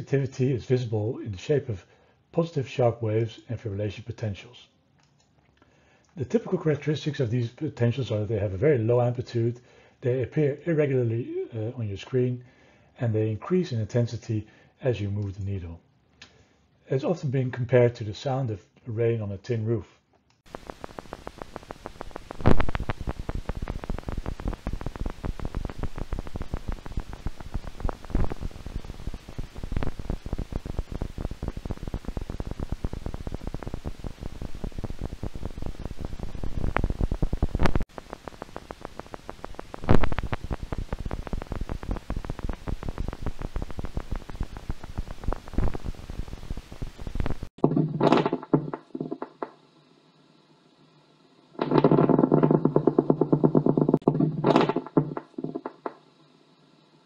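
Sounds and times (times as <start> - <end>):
crackle of small clicks from loudspeaker: 5.0 - 6.2, 20.1 - 48.2
louder pops and bursts: 20.4 - 48.6.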